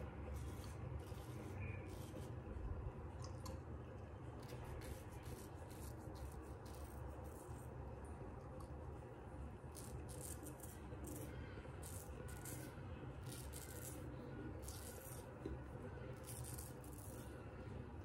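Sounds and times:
straight razor scraping stubble: 0:00.3 - 0:02.4, 0:09.8 - 0:15.3, 0:16.2 - 0:17.3.

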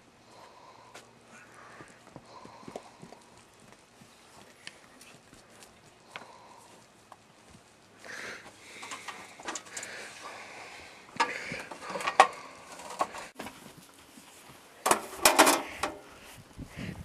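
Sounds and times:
metal parts clanking: 0:14.8 - 0:16.0.

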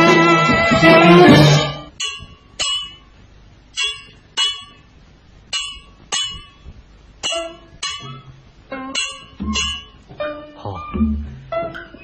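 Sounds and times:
metal percussion strikes: 0:00.9 - 0:10.2.

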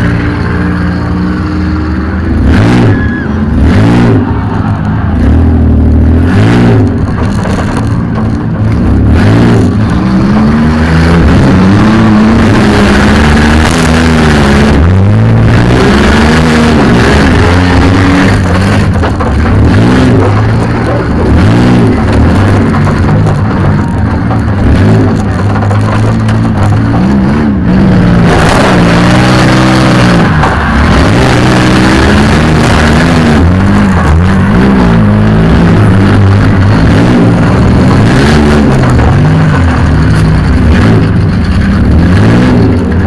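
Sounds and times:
van engine revving: 0:00.0 - 0:43.0
bang: 0:17.9 - 0:41.8.

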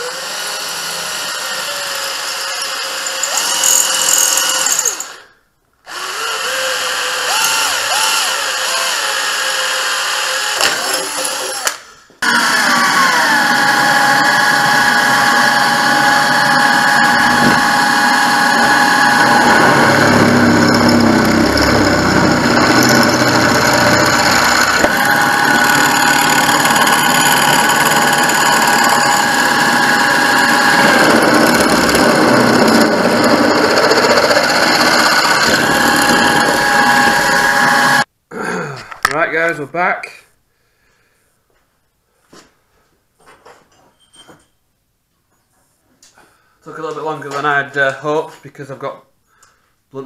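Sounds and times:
drill bit cutting metal: 0:00.0 - 0:05.2, 0:05.9 - 0:38.1
drill motor whine: 0:00.0 - 0:05.2, 0:05.9 - 0:38.1.

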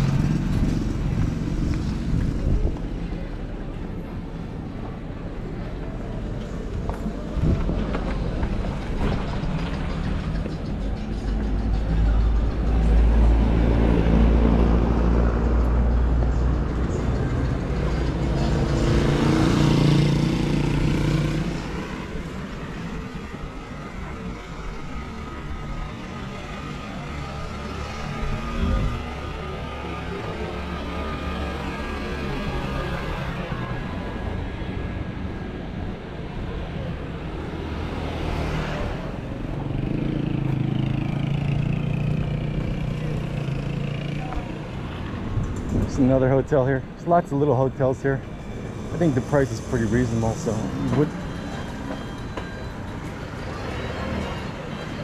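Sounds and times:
heavy vehicle engine rumble: 0:00.0 - 0:55.0
motorcycle passing: 0:37.6 - 0:45.8.

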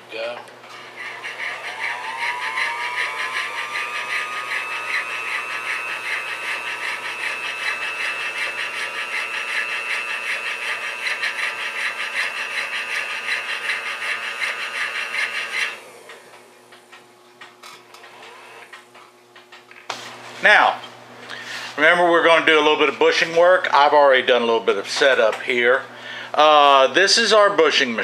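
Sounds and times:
lathe motor whining: 0:00.7 - 0:16.9.

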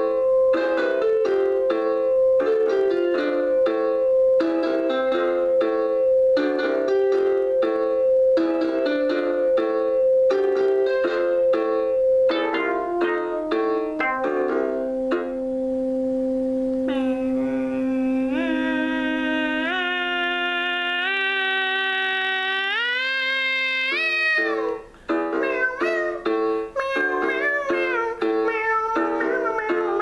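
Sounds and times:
plucked synthesizer notes: 0:00.0 - 0:19.8
held synthesizer tones: 0:12.0 - 0:21.4.

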